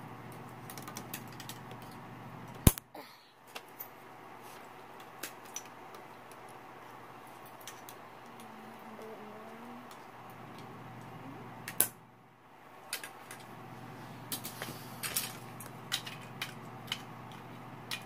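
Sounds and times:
sharp plastic snap: 2.6 - 2.9, 11.7 - 12.0.

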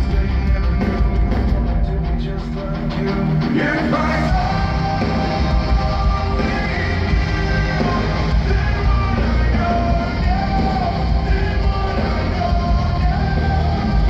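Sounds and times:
live rock band playing: 0.0 - 14.0
person singing: 0.0 - 14.0.

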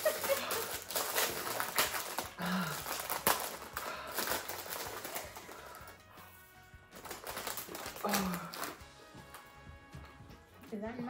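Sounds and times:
plastic packet crinkling: 0.0 - 6.2, 6.9 - 9.4
person humming or sighing: 2.2 - 3.1, 8.0 - 8.8.

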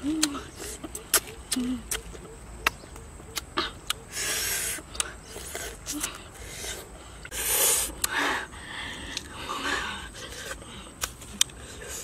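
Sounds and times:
sucking hiss: 4.1 - 12.0.

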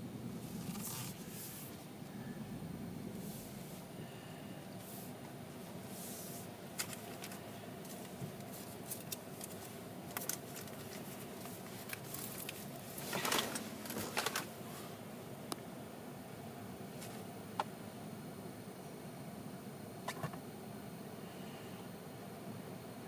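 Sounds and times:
vehicle cab hum: 0.0 - 23.0
rustling: 0.4 - 1.9.

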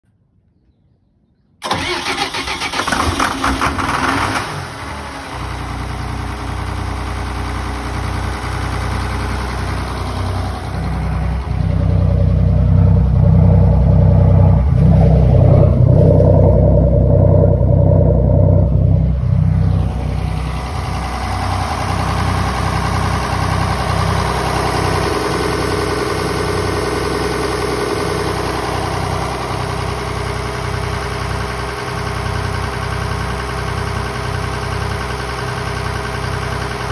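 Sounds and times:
diesel engine starter cranking: 1.6 - 36.5
diesel engine idling: 1.6 - 36.9.

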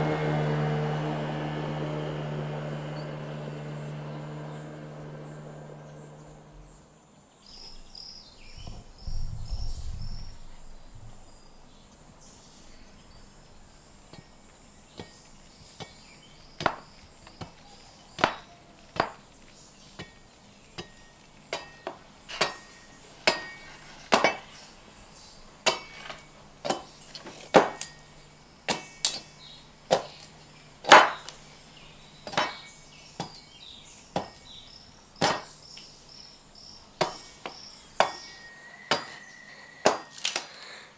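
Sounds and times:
faint insect chirps: 5.9 - 23.9, 24.5 - 39.9
low rumble: 8.5 - 13.7
sharp wooden knocks: 19.0 - 19.2, 27.5 - 27.8, 30.9 - 31.3, 35.2 - 35.6.

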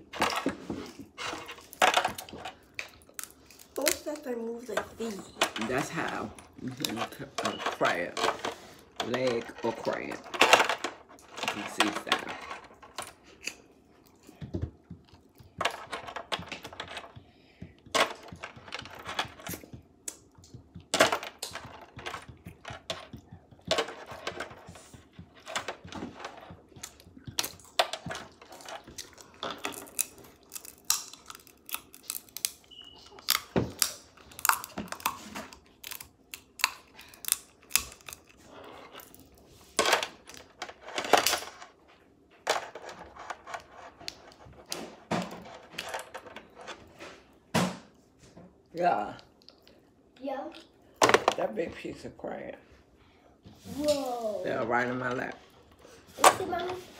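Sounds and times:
crab shells cracking: 29.0 - 32.6, 33.2 - 38.4.

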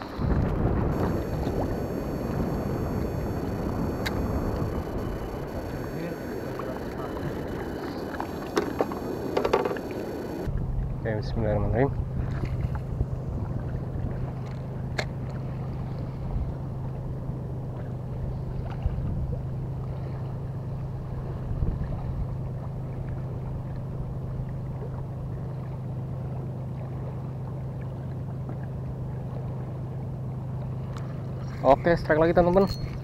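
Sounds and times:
wind noise on microphone: 0.0 - 14.4, 21.1 - 22.7
low motor hum: 0.0 - 33.0.

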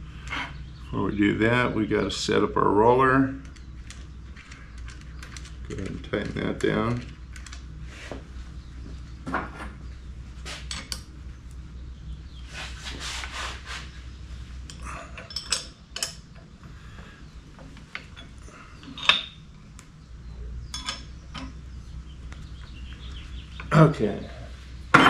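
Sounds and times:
metal clinks and scraping: 14.7 - 16.5, 17.9 - 19.4, 20.7 - 21.6.

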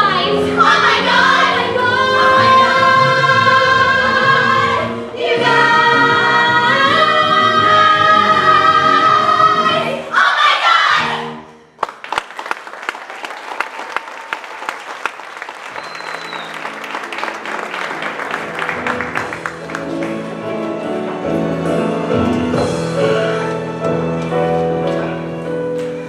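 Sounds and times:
female chorus singing: 0.0 - 11.4
audience applauding: 11.8 - 20.6
audience cheering: 12.1 - 19.9
soft instrumental music: 16.2 - 26.0.

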